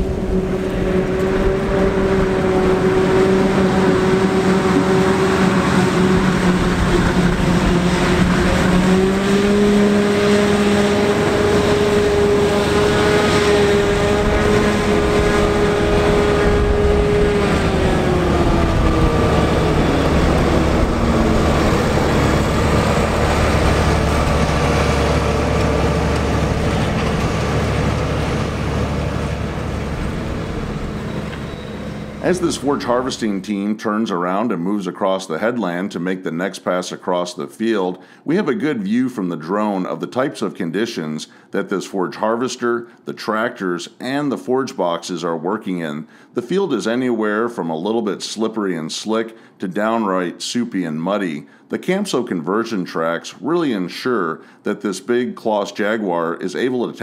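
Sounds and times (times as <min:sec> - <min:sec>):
forage harvester whining: 0:00.0 - 0:33.5.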